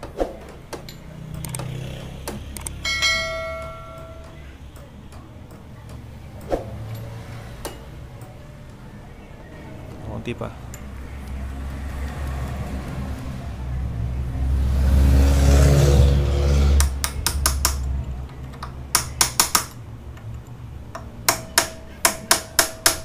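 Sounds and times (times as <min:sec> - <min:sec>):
engine hum: 0:00.0 - 0:19.0
hammer striking metal punch: 0:02.8 - 0:04.4, 0:18.9 - 0:19.8, 0:21.0 - 0:23.0.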